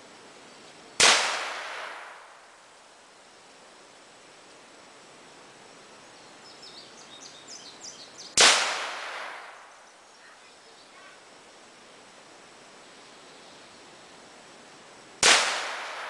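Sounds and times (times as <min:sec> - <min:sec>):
gunshot with echo: 0:01.0 - 0:02.3, 0:08.4 - 0:09.6, 0:15.2 - 0:16.0
bird chirping: 0:06.0 - 0:08.4, 0:09.5 - 0:11.2.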